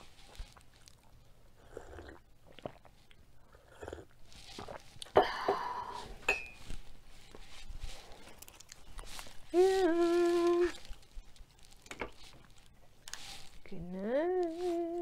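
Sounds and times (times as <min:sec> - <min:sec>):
person slurping coffee: 0:01.6 - 0:02.9, 0:03.5 - 0:06.3
mug clinking on table: 0:06.3 - 0:06.6.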